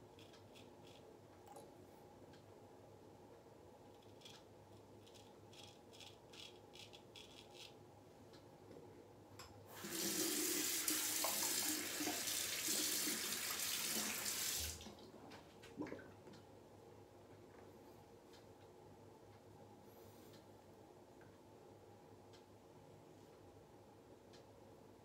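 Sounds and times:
sink tap running: 9.7s - 14.8s.

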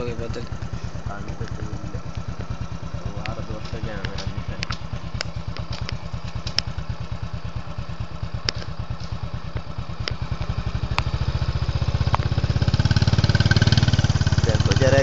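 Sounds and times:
motorcycle engine running: 0.0s - 15.0s
sharp clicks: 3.2s - 6.7s, 8.4s - 11.2s.

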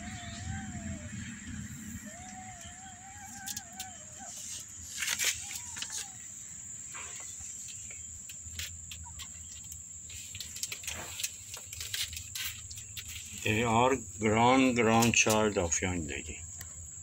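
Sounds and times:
high-pitched whine: 0.0s - 7.2s.

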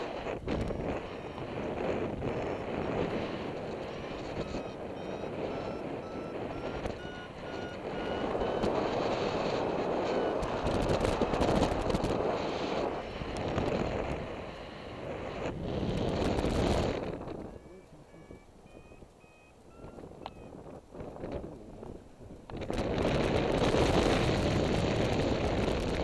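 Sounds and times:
wind on microphone: 0.0s - 26.0s
variometer beeping: 0.3s - 11.9s, 17.4s - 20.7s.

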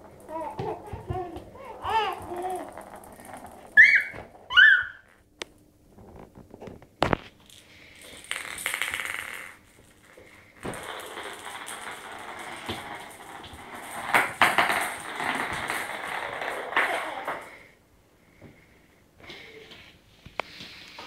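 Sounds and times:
ball knocking: 0.0s - 5.2s, 8.2s - 17.6s
plastic ball rolling on floor: 0.0s - 17.8s.

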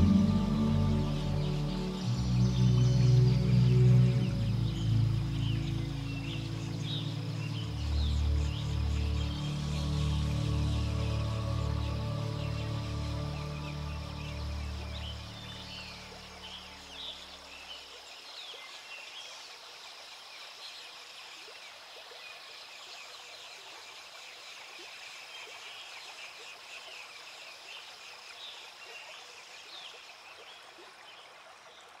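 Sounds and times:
background music: 0.0s - 17.2s.

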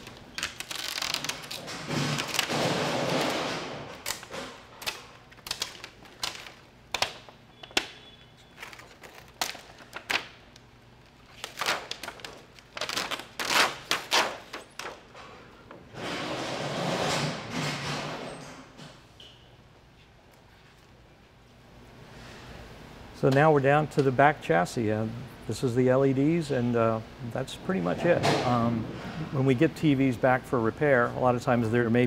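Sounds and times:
crinkly plastic rustling: 0.0s - 2.5s, 4.0s - 7.8s, 8.4s - 10.6s, 11.3s - 15.1s
plastic sheet clicking and snapping: 0.0s - 10.6s, 11.3s - 15.2s.

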